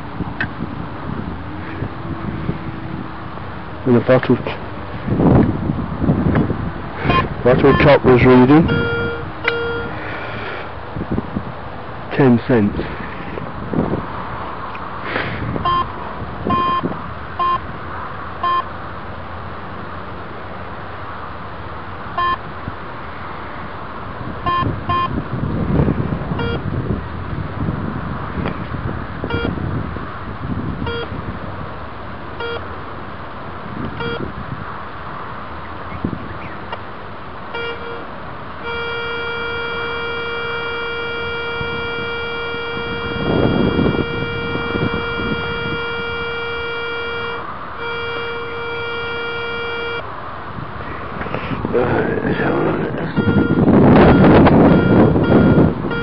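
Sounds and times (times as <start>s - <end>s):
metal detector beeping: 7.0s - 10.0s, 15.6s - 16.8s, 17.4s - 17.6s, 18.4s - 18.7s, 22.2s - 22.4s, 24.5s - 25.1s, 26.4s - 26.6s, 29.3s - 29.6s, 30.9s - 31.1s, 32.4s - 32.6s, 34.0s - 34.2s, 37.6s - 50.0s, 53.1s - 56.0s.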